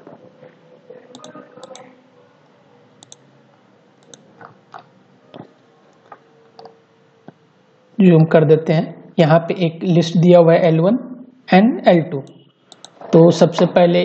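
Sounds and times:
computer mouse clicking: 1.1 - 1.8, 3.0 - 3.2, 4.0 - 4.2, 12.2 - 13.0.

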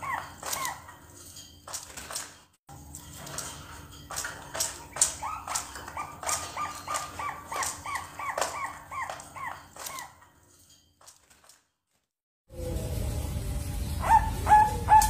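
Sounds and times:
doves cooing: 4.6 - 10.2.

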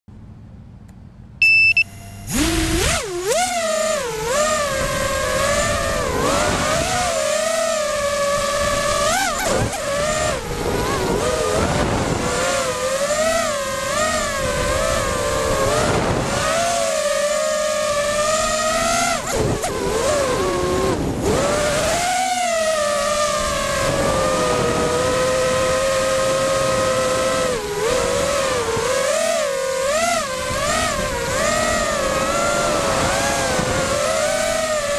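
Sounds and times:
short beep: 1.4 - 2.4
drone motors whining: 1.4 - 34.9.

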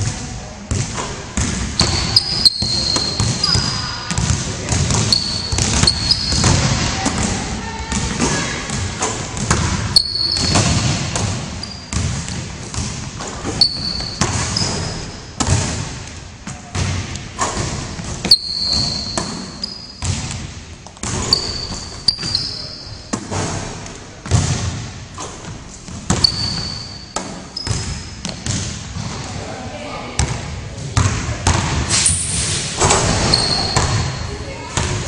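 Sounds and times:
basketball bouncing on hardwood floor: 0.7 - 7.3, 9.4 - 19.4, 20.0 - 22.3, 25.9 - 29.2
sneaker squeaks: 0.8 - 15.6, 17.4 - 20.4, 21.0 - 23.9, 25.2 - 29.2, 31.9 - 35.0.

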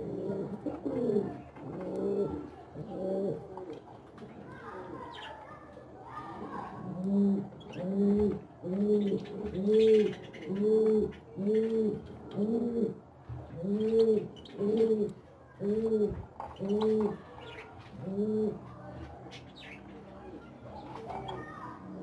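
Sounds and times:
dove cooing: 0.0 - 5.1, 6.4 - 22.0
small birds chirping: 3.7 - 6.8, 7.4 - 12.4, 13.5 - 22.0.

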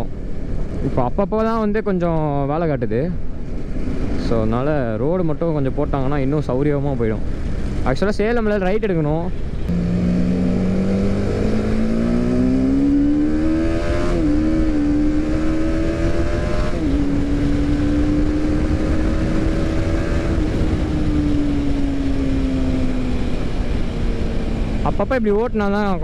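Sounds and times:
motorcycle engine accelerating: 9.4 - 25.0
wind rush on microphone: 9.7 - 25.1.

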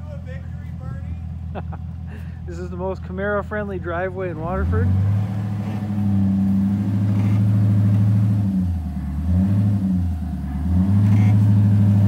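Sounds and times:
car engine at low revs: 0.0 - 12.0.

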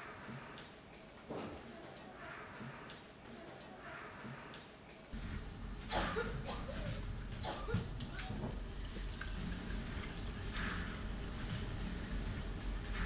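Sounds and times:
low electrical hum: 4.2 - 13.0.

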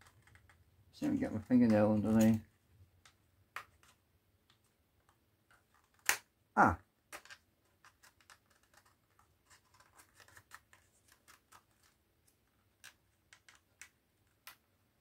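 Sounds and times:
fingernail clicking on plastic: 7.1 - 12.0.

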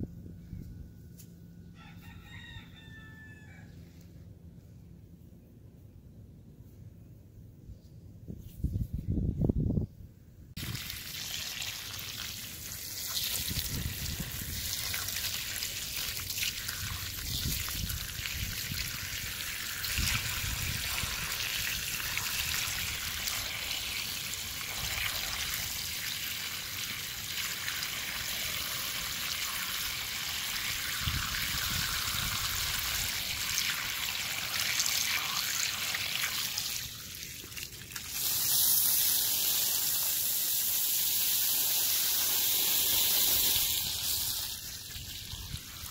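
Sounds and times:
water spraying onto grass: 10.6 - 45.9.

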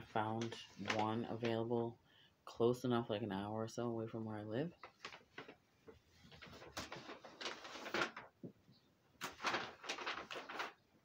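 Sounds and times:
paper bag rustling: 4.8 - 8.5, 9.2 - 11.0.

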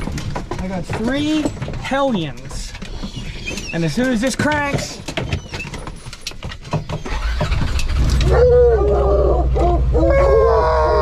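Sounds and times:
clicking and rattling: 0.0 - 9.3
hounds bawling: 7.1 - 11.0
low engine hum: 7.8 - 11.0.

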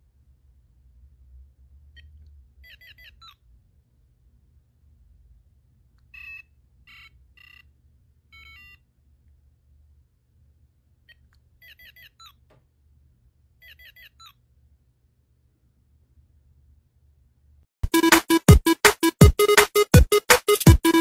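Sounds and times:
toy beeping tune: 6.1 - 7.7, 8.3 - 8.8, 17.8 - 21.0
falling electronic chirps: 17.8 - 21.0.

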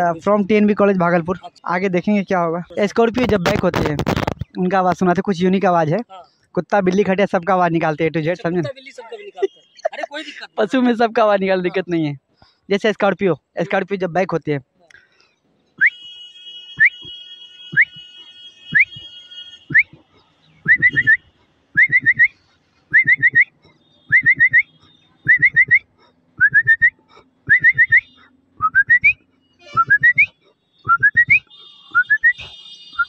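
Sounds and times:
man whistling rising chirps: 15.8 - 16.1, 16.8 - 17.1, 17.7 - 18.0, 18.7 - 19.1, 19.7 - 20.0, 20.6 - 33.0.

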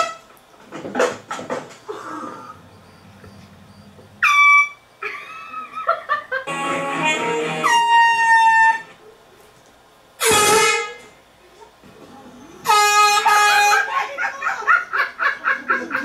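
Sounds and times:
air horn blast: 6.5 - 9.0, 10.2 - 11.1, 12.6 - 13.9.

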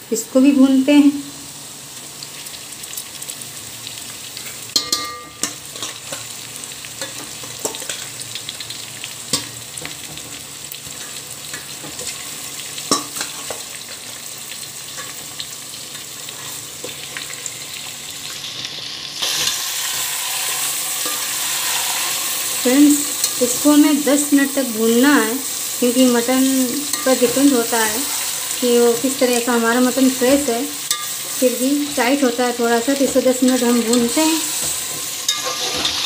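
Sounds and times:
meat sizzling in a pot: 0.0 - 36.0
metal spoon scraping a pot: 33.5 - 36.0.

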